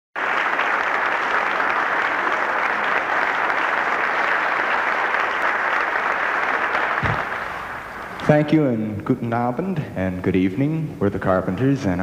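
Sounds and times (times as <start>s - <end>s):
audience applauding: 0.2s - 8.4s.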